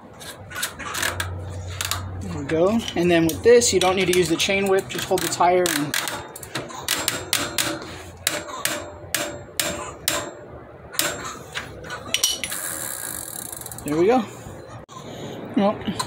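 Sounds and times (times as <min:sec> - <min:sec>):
ratchet wrench clicking: 0:00.6 - 0:10.3, 0:12.2 - 0:14.0.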